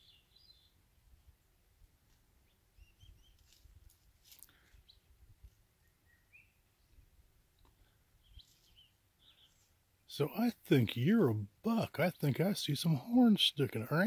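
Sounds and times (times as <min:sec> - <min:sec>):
distant bird chirps: 0:00.0 - 0:00.8, 0:02.4 - 0:03.7, 0:04.5 - 0:10.4.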